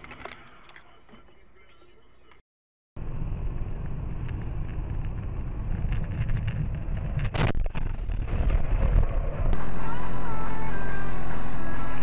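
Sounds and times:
vehicle driving rumble: 3.0 - 9.6.

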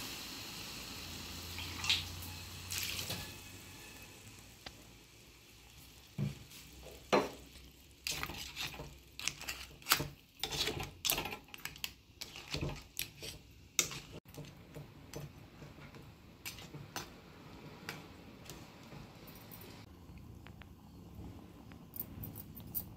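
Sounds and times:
metal spoon scraping a pan: 7.6 - 17.1.

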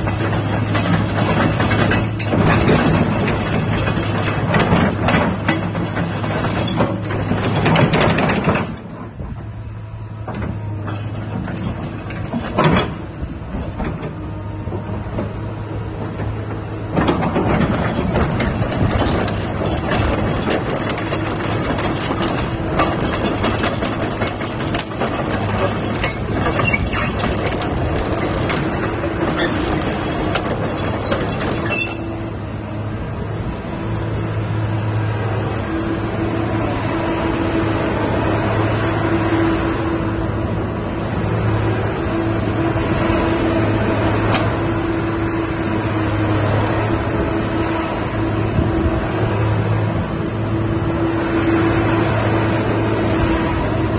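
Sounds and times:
excavator engine humming: 0.0 - 53.9
rapid clicks and rattles: 18.7 - 31.8.

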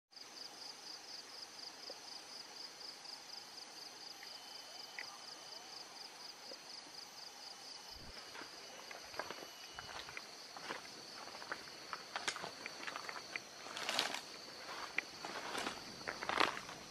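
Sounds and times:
high-pitched insect chirping: 0.3 - 16.9.

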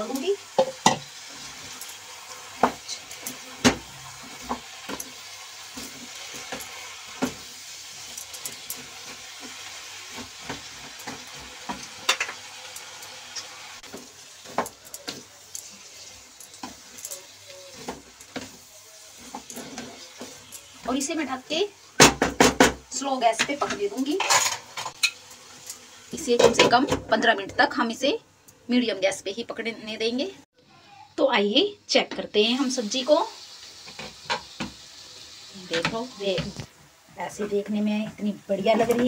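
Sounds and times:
vegetables sizzling in pan: 0.0 - 39.0
wooden spatula stirring: 13.4 - 21.2.

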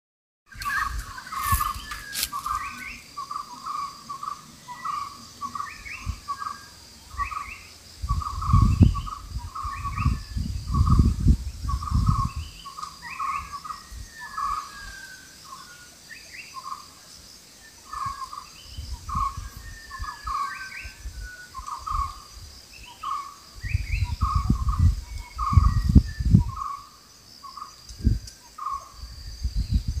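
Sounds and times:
high bird chirps: 0.5 - 15.8
birds calling: 0.5 - 29.0.

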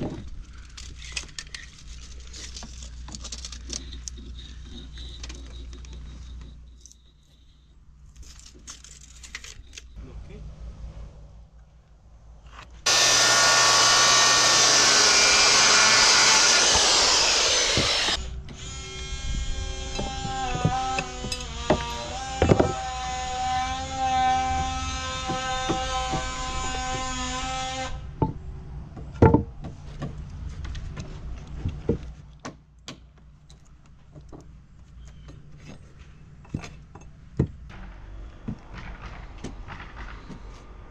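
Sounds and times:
boards and tools knocking: 12.9 - 18.2, 20.0 - 23.0, 23.6 - 27.4, 28.2 - 30.2, 36.5 - 40.6
circular saw cutting board: 12.9 - 18.3, 19.7 - 28.0.

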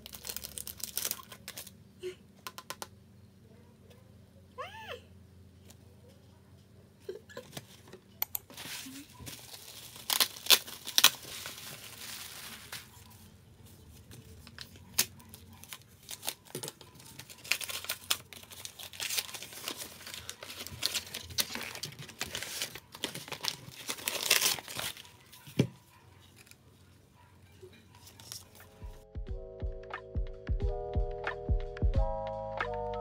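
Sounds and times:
bubble wrap and paper crinkling: 0.0 - 1.8, 7.4 - 26.9, 27.9 - 29.0.

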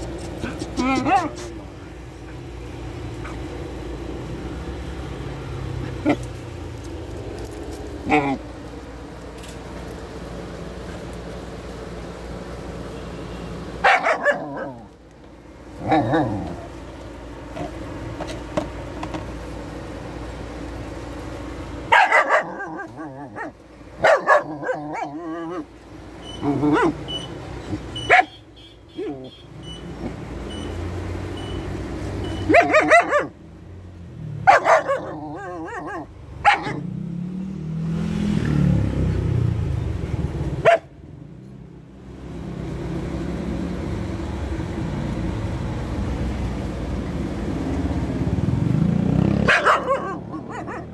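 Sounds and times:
dog barking: 0.4 - 1.5, 13.8 - 14.9, 21.9 - 25.7, 26.4 - 27.0, 28.0 - 28.4, 32.4 - 33.4, 34.4 - 36.8, 40.6 - 40.9, 49.4 - 50.9.

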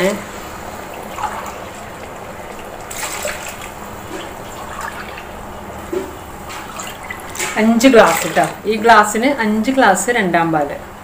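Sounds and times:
liquid pouring in a stream: 0.7 - 5.4.

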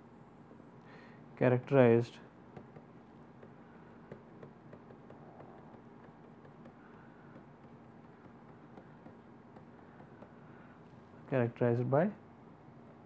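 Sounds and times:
faint electrical hum: 0.0 - 13.0
stylus tapping on tablet screen: 2.5 - 11.0.

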